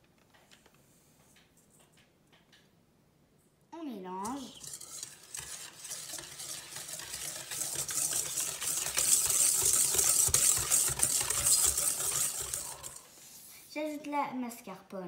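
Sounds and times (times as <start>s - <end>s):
wire whisk beating in metal bowl: 4.2s - 13.1s.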